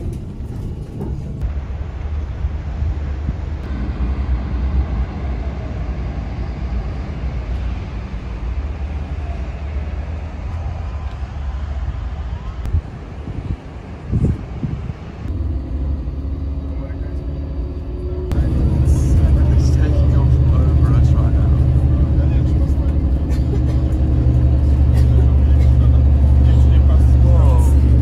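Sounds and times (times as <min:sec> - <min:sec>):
wind buffeting microphone: 0:00.0 - 0:15.4.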